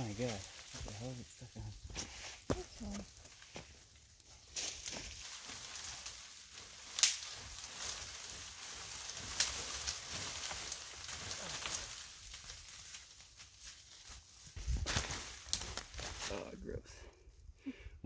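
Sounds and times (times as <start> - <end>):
dry leaves and twigs rustling: 0.0 - 17.4
twig snapping: 4.6 - 8.3, 14.9 - 16.1.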